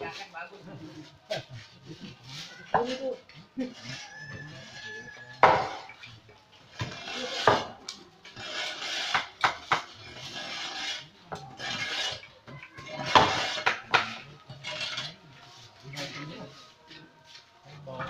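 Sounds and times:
knives scraping and rasping: 6.7 - 15.2.

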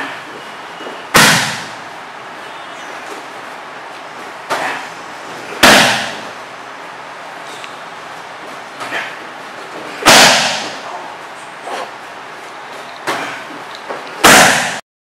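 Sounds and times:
kicks slapping body pad: 1.1 - 1.8, 5.6 - 6.2, 10.0 - 10.8, 14.2 - 14.8.

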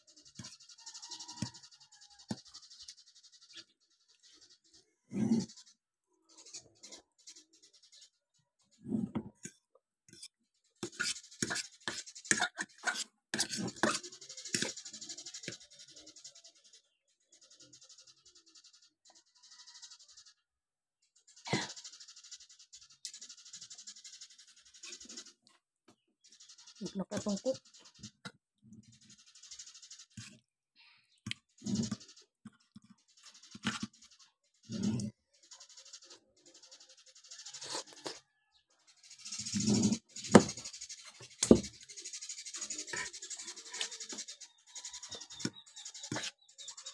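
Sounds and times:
fork scraping ceramic plate: 8.9 - 14.8, 39.4 - 40.6, 42.9 - 44.0, 45.4 - 46.4.

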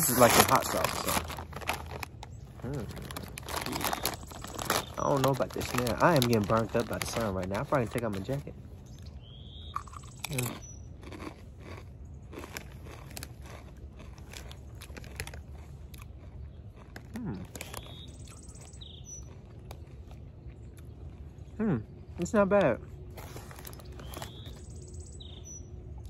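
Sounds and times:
chip crunching while chewed: 0.0 - 8.5, 9.6 - 24.8
bird chirping: 2.2 - 5.8, 8.8 - 11.0, 16.4 - 22.3, 23.7 - 25.8.

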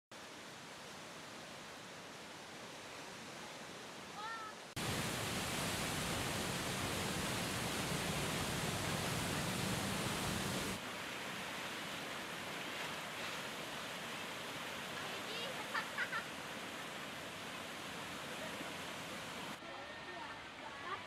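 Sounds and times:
river roaring: 0.2 - 21.0.

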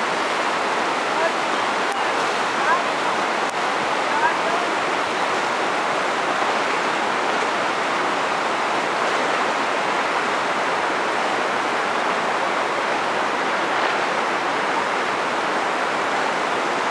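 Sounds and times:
floodwater roaring: 0.0 - 16.9.

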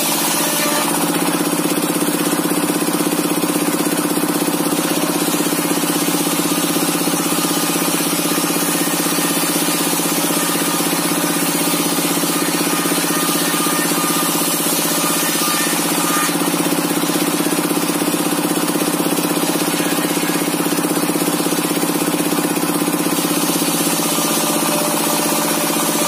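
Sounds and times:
diesel engine running: 0.9 - 12.3, 16.4 - 24.2.

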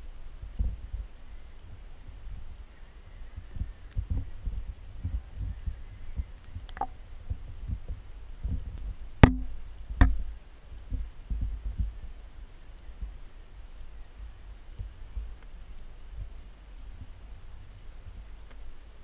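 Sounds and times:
sharp clicks: 6.4 - 6.9.

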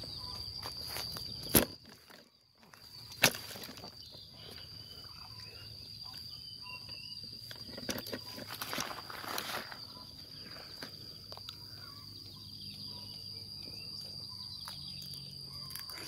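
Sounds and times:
high-pitched insect drone: 0.0 - 2.1, 2.7 - 16.0
crackling footsteps or twig snaps: 0.6 - 4.0.

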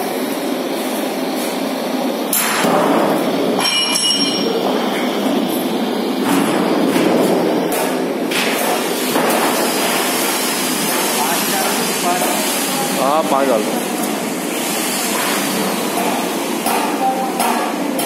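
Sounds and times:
mechanical workshop noise: 0.0 - 18.0
metal knocks and clinks: 3.6 - 4.5.

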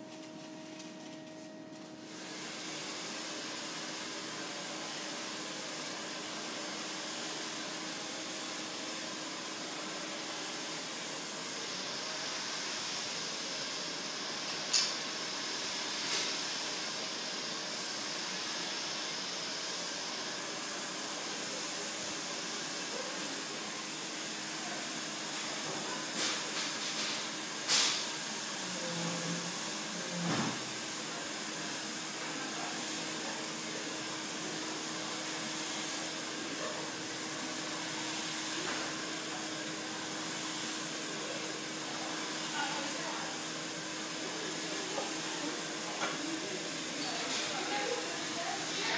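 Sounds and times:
hair dryer blowing: 2.1 - 48.9
aerosol hairspray hissing: 19.5 - 22.4, 23.0 - 23.5, 37.2 - 38.3.

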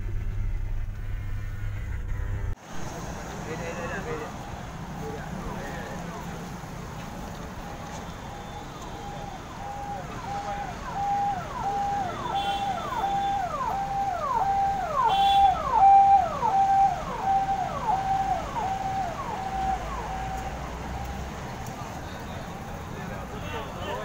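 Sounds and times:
electronic siren passing: 7.6 - 21.4.

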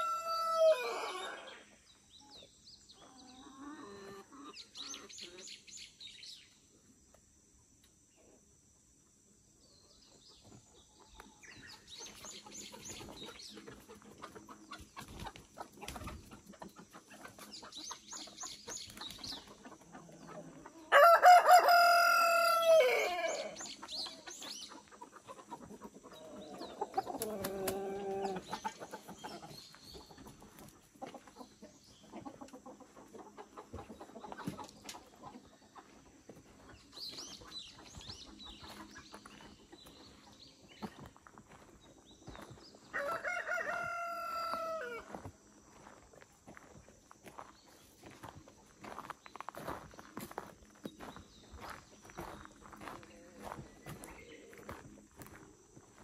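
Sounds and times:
rooster crowing: 0.0 - 1.5, 20.9 - 23.6, 42.9 - 45.2
chickens clucking: 0.0 - 5.7, 7.0 - 56.0.

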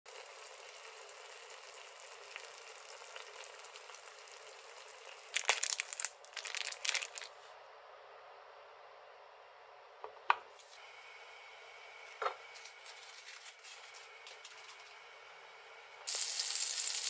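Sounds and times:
sauce sizzling and bubbling: 0.1 - 6.2, 16.1 - 17.0.

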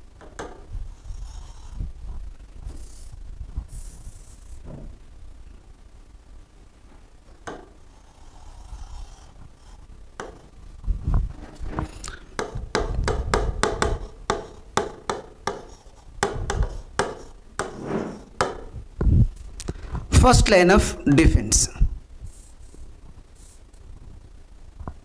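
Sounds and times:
pen rubbing on glass: 7.9 - 10.5, 15.5 - 18.4.

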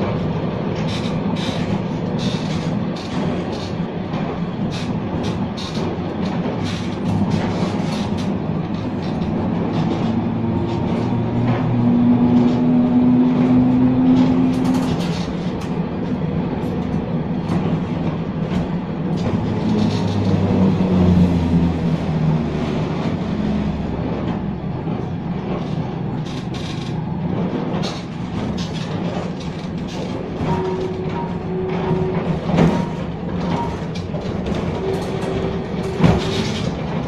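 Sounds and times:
tram wheels rumbling on rails: 0.0 - 37.0.

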